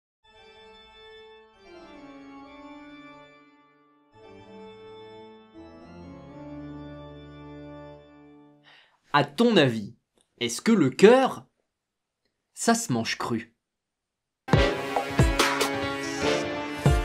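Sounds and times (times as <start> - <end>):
slow organ chords: 0.3 - 8.6.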